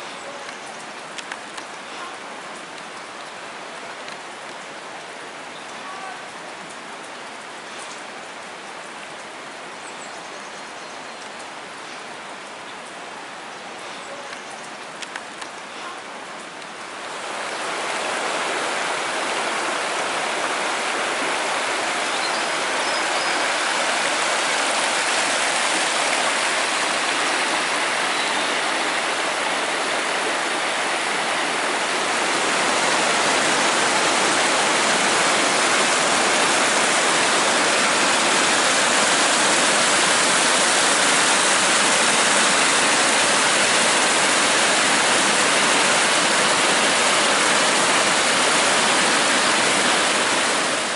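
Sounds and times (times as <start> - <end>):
waterfall rushing: 14.9 - 50.9.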